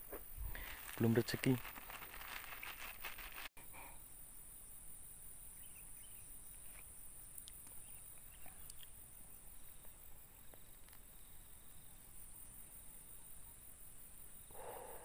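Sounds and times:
insect chorus hum: 0.0 - 15.0
soft bird chirps: 5.5 - 9.0
light ticks: 6.7 - 7.8.

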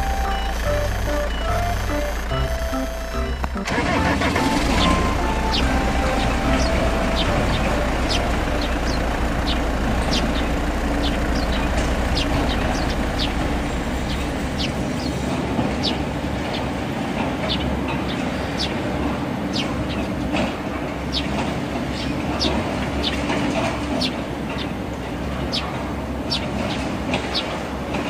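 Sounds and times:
high bird chirps: 4.8 - 16.0.

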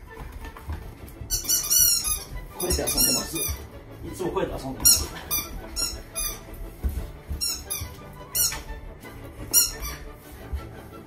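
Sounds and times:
dog feet thudding on mat floor: 0.0 - 11.0
squeaky dog toy squeaking: 1.3 - 3.6, 4.8 - 6.5, 7.4 - 8.7, 9.4 - 10.1.

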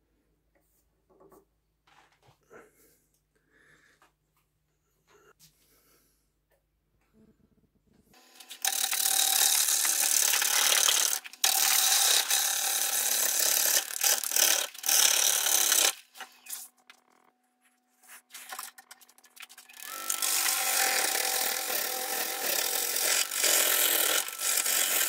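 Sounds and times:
lathe motor hum: 19.8 - 25.0.

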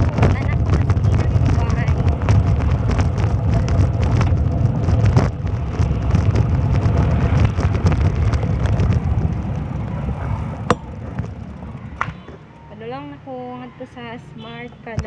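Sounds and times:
wind buffeting microphone: 0.0 - 12.0
vehicle noise: 0.0 - 15.0.

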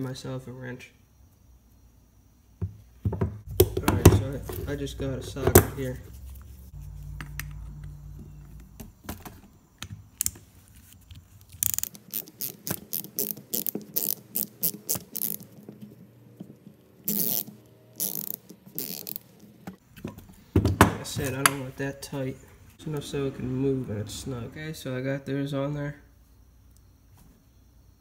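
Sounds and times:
ratchet wrench clicking: 11.5 - 15.4, 17.1 - 19.2.

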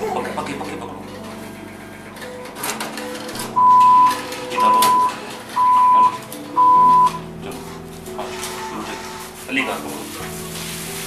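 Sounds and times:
atm beeping: 2.3 - 7.3.

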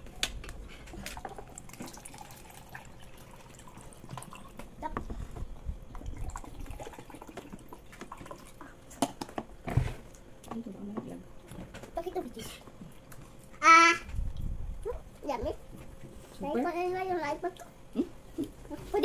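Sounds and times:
water pouring into plastic cups: 1.1 - 4.6, 6.0 - 8.7.

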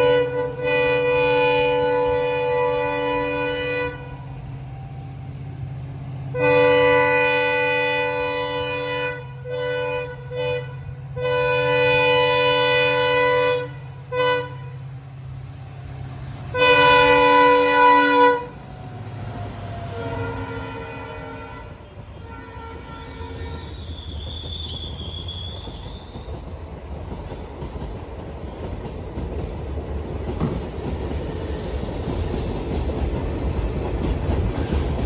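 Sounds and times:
locomotive horn blasts: 0.0 - 4.4, 6.3 - 15.0, 16.5 - 18.6, 19.8 - 23.8.

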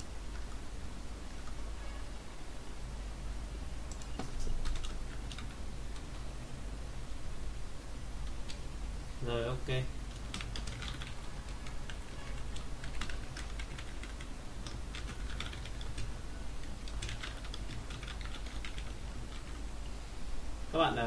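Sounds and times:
computer keyboard typing: 3.9 - 6.2, 10.1 - 19.7.

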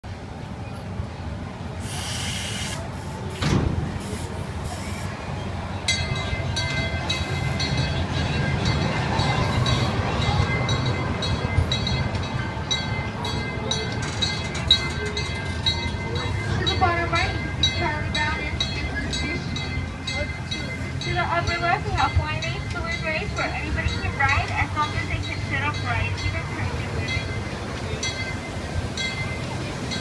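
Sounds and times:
roller coaster train rumbling: 0.0 - 30.0
short hiss: 1.8 - 3.4
thump: 3.4 - 3.9.

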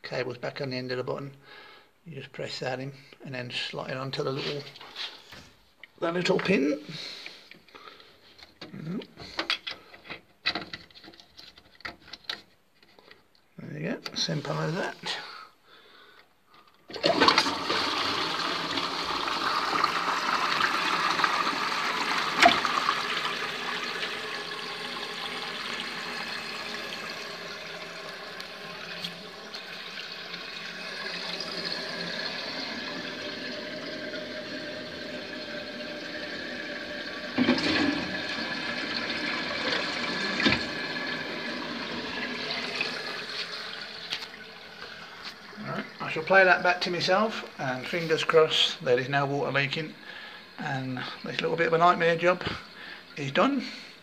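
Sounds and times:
cistern refilling: 16.9 - 54.0
toilet flushing: 16.9 - 54.0.

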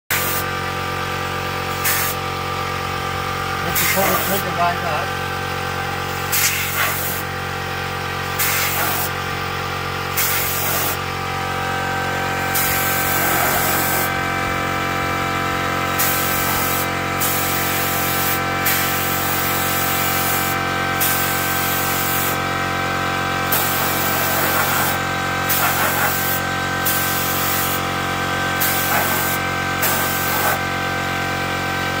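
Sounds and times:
spray gun hissing: 0.1 - 0.4, 1.7 - 2.2, 3.7 - 4.5, 6.2 - 7.3, 8.3 - 9.2, 10.1 - 11.0, 12.5 - 14.2, 16.0 - 22.4, 23.4 - 27.8, 28.6 - 30.6
air compressor hum: 0.1 - 32.0.

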